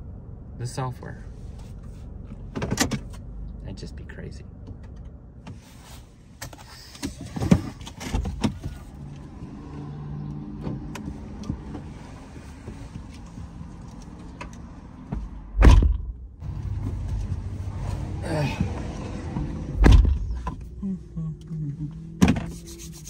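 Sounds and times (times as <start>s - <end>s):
car door shutting: 15.6s - 16.1s, 18.5s - 20.7s.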